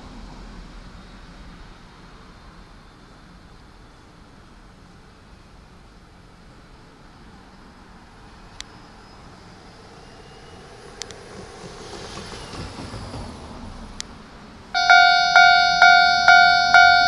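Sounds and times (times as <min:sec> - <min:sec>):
faint rail-yard background: 0:00.0 - 0:17.0
level-crossing warning bell: 0:14.7 - 0:17.0
lower warning tones: 0:14.7 - 0:17.0.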